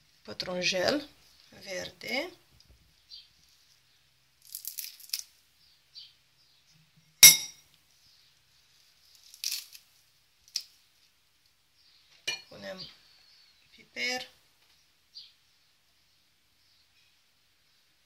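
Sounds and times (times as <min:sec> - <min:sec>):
parsley being torn: 0:04.4 - 0:05.4, 0:09.1 - 0:10.8
spoon clinking in ceramic bowl: 0:07.2 - 0:07.6.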